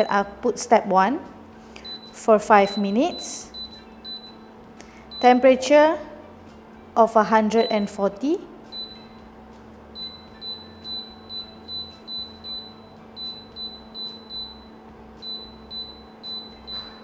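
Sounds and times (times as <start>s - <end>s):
oven control panel beeping: 1.8s - 5.5s, 8.7s - 9.3s, 10.0s - 17.0s.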